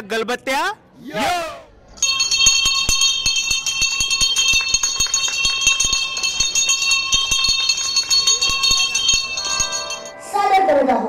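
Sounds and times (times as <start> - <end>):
percussion strikes: 2.0 - 10.6
music with jingling bells: 2.0 - 10.7.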